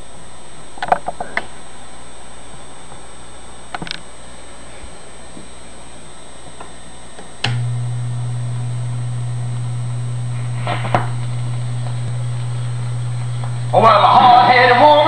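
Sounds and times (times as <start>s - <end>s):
record player low hum: 0.0s - 15.0s
switch click: 7.4s - 8.0s
needle scraping on record: 10.2s - 14.4s.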